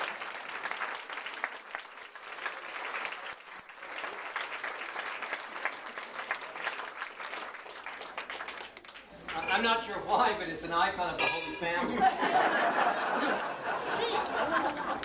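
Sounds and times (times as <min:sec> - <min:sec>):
people applauding: 0:00.0 - 0:09.5, 0:13.2 - 0:15.0.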